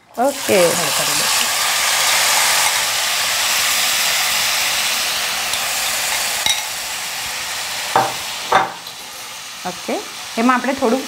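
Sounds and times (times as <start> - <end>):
beans sizzling in hot oil: 0.0 - 11.0
spoon tapping pan: 8.0 - 9.0.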